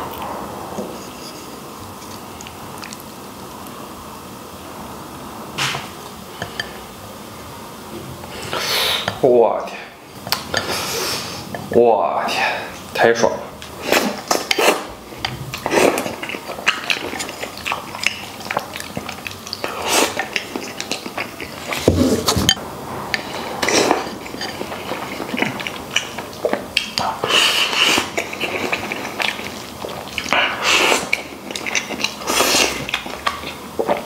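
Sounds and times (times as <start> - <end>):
wet chewing and slurping: 0.9 - 3.2, 13.6 - 34.0.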